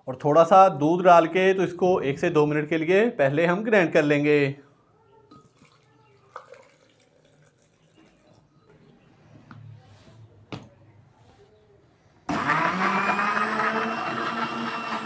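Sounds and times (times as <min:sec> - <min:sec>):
electric blender running: 0:12.3 - 0:15.0.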